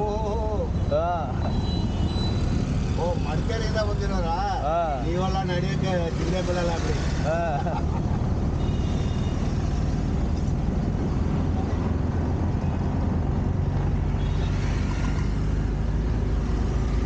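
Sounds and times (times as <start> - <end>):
auto-rickshaw engine running: 0.0 - 17.0
road noise: 0.0 - 17.0
surrounding traffic: 0.0 - 17.0
wind: 0.0 - 17.0.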